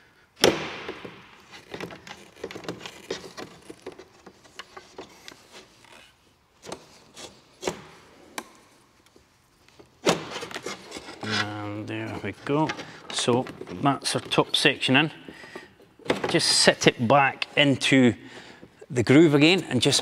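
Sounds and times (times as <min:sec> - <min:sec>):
pipe rubbing and scraping in grommet: 0:10.5 - 0:14.7.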